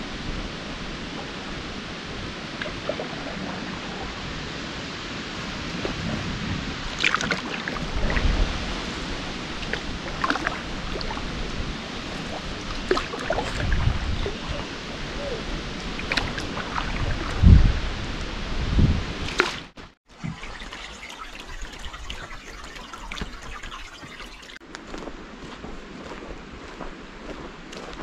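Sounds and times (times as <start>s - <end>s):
wind noise on microphone: 0.0s - 20.6s, 21.2s - 28.0s
canoe paddle splashing in water: 5.4s - 18.1s, 19.2s - 24.6s
water dripping off paddle: 6.9s - 8.2s, 12.0s - 13.8s, 15.8s - 17.4s, 20.2s - 24.6s.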